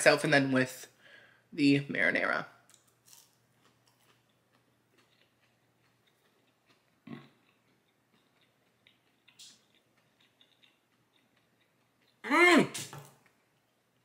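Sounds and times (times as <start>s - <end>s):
chewing crispy food: 2.7s - 12.2s.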